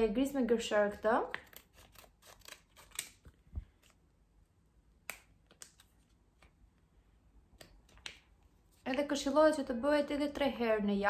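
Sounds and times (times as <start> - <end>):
scissors snipping sachet: 1.4 - 3.2.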